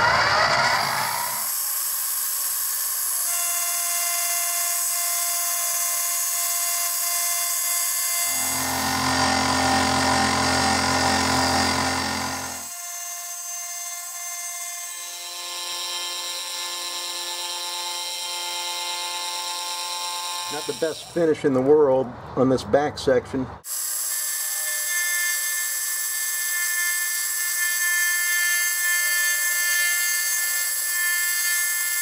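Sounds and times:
mill motor whine: 0.0s - 21.1s
end mill cutting aluminum: 0.0s - 21.2s, 23.7s - 32.0s
low hum: 8.2s - 12.7s.

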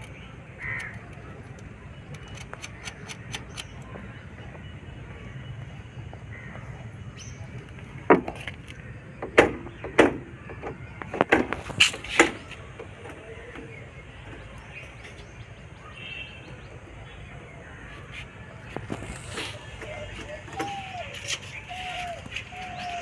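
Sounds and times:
tools clicking and knocking: 0.8s - 3.8s.

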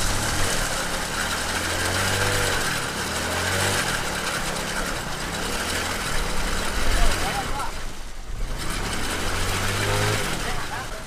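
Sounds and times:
motorbike engine running: 0.0s - 11.0s.

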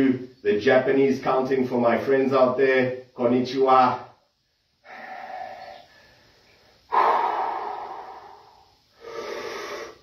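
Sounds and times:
man breathing deeply: 4.8s - 10.0s.

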